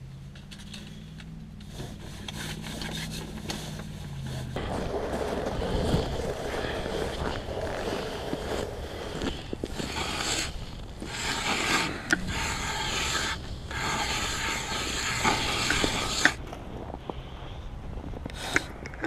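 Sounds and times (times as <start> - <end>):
clothing rubbing handling noise: 1.6 - 17.0.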